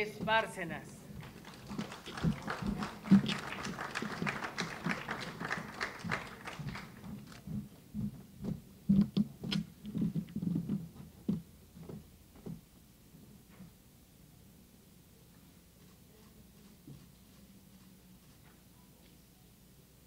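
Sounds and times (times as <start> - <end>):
soft thumps of people moving: 6.6 - 12.7.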